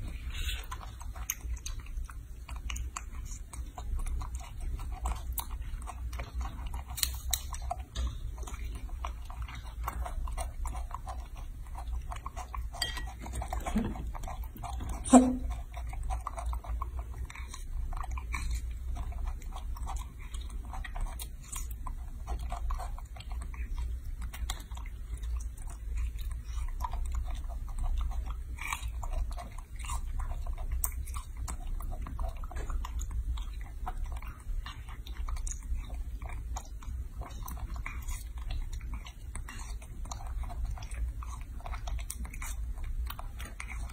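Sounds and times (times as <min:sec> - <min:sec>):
monkey chewing and smacking: 0:00.0 - 0:43.9
steady low hum: 0:00.0 - 0:43.9.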